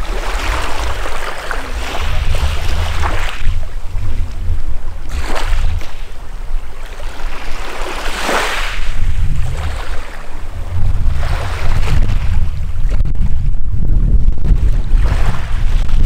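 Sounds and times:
waves washing on pebbly shore: 0.0 - 10.5
wind rumble on microphone: 0.0 - 16.0.

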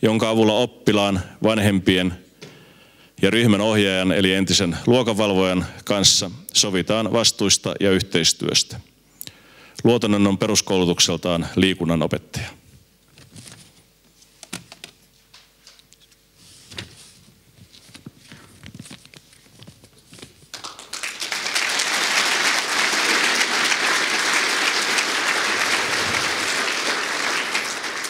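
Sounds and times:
audience applauding: 20.5 - 28.0.

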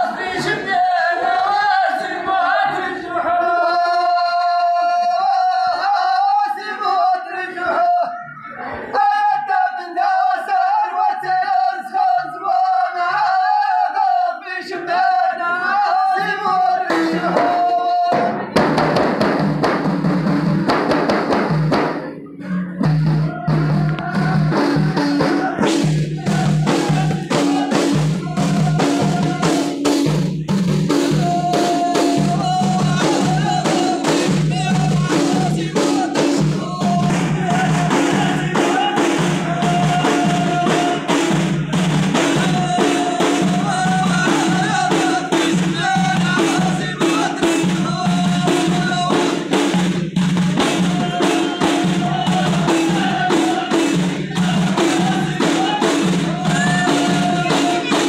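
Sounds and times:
men singing in unison: 0.0 - 58.0
frame drums beating: 16.4 - 58.0.

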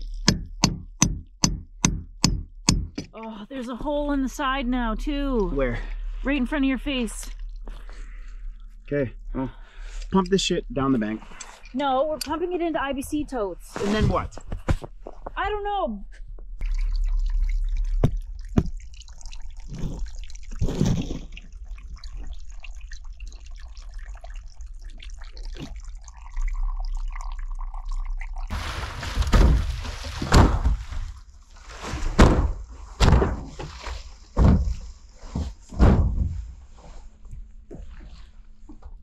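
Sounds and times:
water dripping and trickling: 0.0 - 13.1, 16.6 - 32.0
hollow thunks of tipped tank: 28.6 - 31.2, 31.8 - 36.5.

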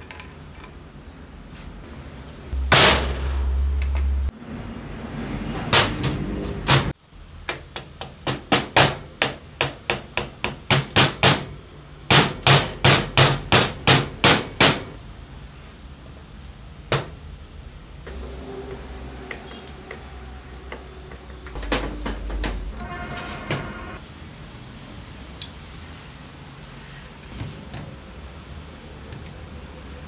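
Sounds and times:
mallet striking metal: 2.6 - 4.3.

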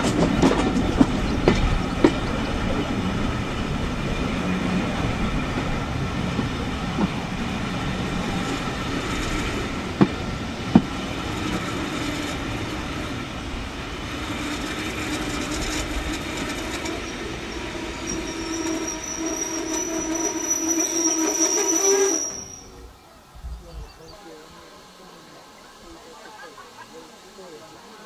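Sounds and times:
train carriages rattling: 0.0 - 22.8
high wheel squeal: 15.2 - 22.9.

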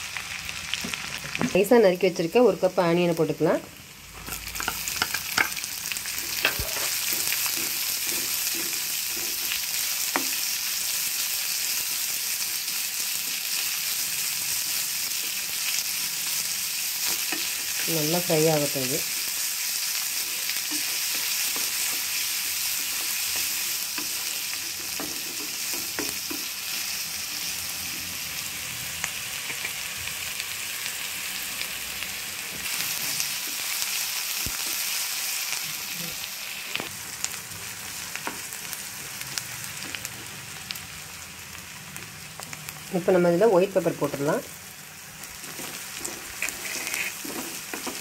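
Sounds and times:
onions sizzling in oil: 0.0 - 48.0
wooden spatula scraping pan: 6.3 - 9.6, 45.4 - 48.0.

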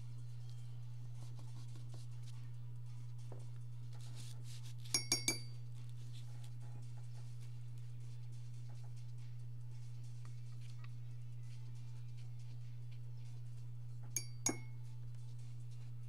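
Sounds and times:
low electrical hum: 0.0 - 16.0
glass clinking: 4.9 - 5.6, 14.2 - 14.8.

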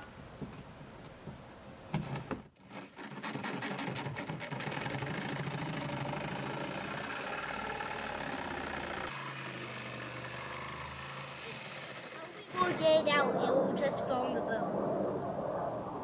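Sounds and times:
electric jigsaw cutting fiberglass: 2.6 - 12.9.

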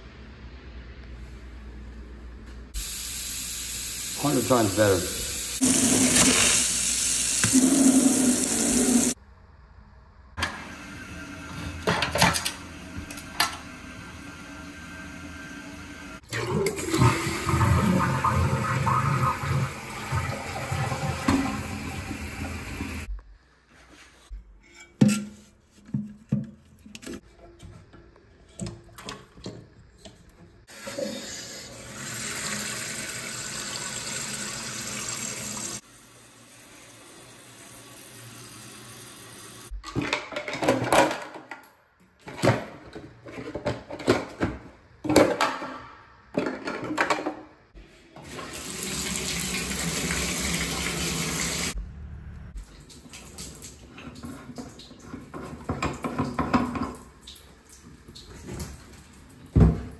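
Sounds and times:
water running from a tap: 2.8 - 9.2, 16.0 - 23.1, 30.7 - 39.7, 48.3 - 51.8
toilet tank refilling: 4.1 - 9.2, 10.4 - 23.1, 28.4 - 39.7, 48.1 - 51.8, 52.6 - 59.9.

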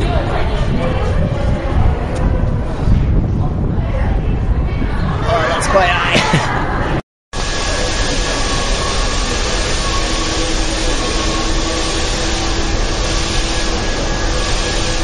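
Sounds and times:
subway train hum and rushing: 0.0 - 15.0
low tone: 6.5 - 15.0.

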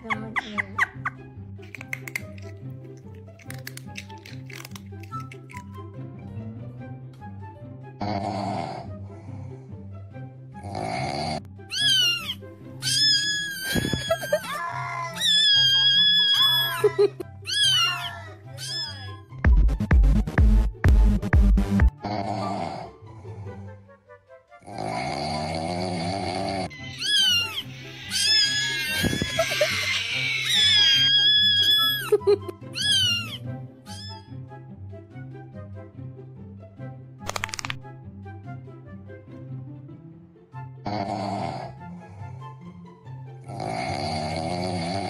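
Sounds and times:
cat wailing cries: 11.7 - 19.2, 26.7 - 34.2
background music with bass line: 19.4 - 22.1.

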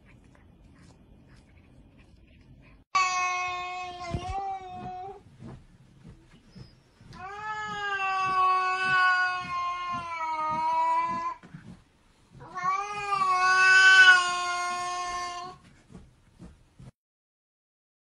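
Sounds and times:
cat yowling: 7.1 - 11.4, 12.4 - 15.6.

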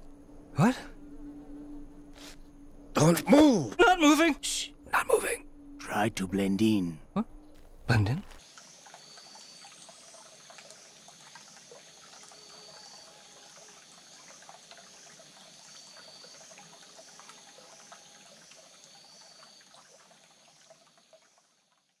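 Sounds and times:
small drips and ticks: 7.5 - 22.0
stream trickling over rocks: 7.9 - 22.0.

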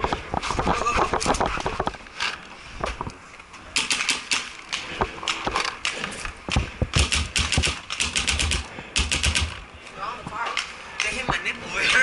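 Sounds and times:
paintball marker firing: 3.8 - 9.6.

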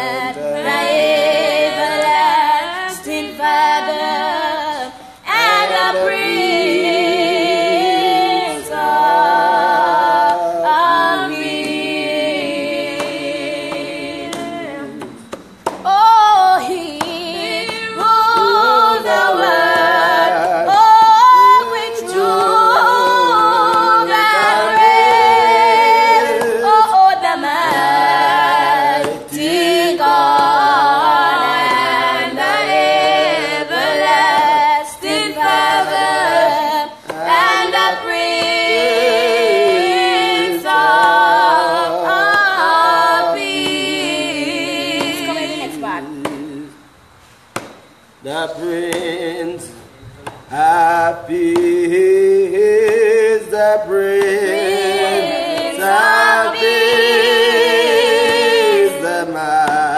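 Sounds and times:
group singing unaccompanied: 0.0 - 59.9
woman singing: 15.8 - 19.3, 26.4 - 27.9, 44.4 - 46.6.

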